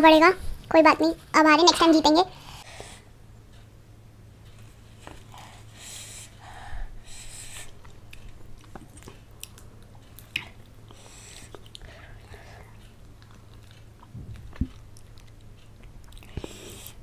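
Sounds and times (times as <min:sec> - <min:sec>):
lip and tongue clicks: 0:07.7 - 0:17.0.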